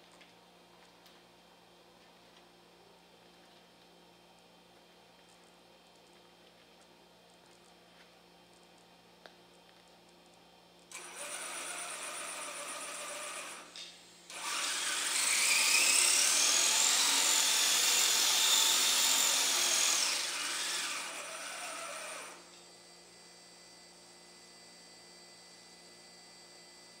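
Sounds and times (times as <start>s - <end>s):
electric motors whining: 10.9s - 22.6s.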